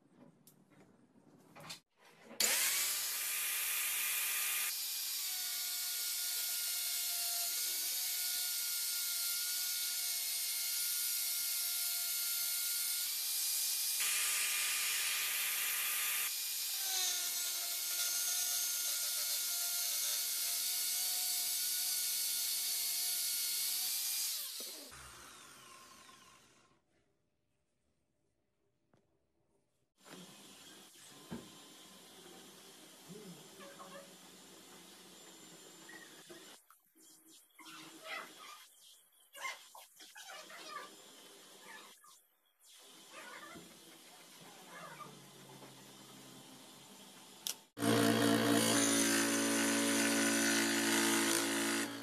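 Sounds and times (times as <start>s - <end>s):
angle grinder cutting plastic pipe: 2.3s - 26.8s, 47.4s - 52.0s.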